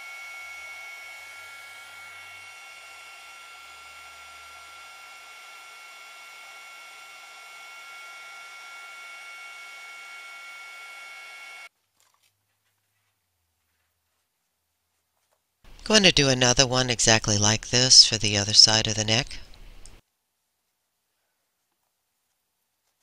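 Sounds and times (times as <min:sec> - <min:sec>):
heat gun air rush with whine: 0:00.0 - 0:11.7, 0:15.7 - 0:20.0.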